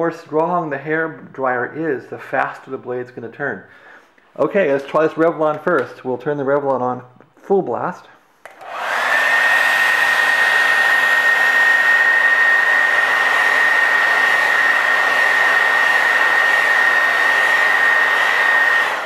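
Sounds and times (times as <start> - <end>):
hair dryer running: 8.4 - 19.0.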